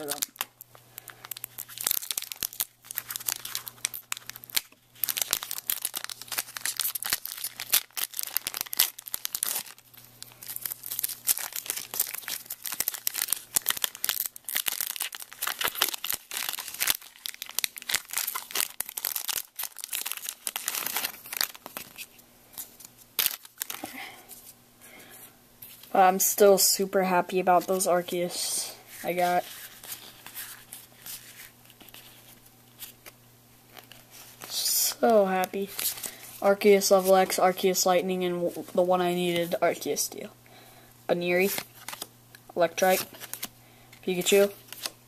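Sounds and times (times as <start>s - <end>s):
foil wrapper tearing and crinkling: 0.0s - 24.0s.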